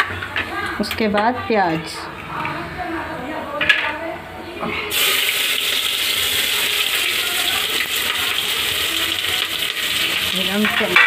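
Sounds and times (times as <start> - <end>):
onions sizzling in hot oil: 4.9 - 11.0.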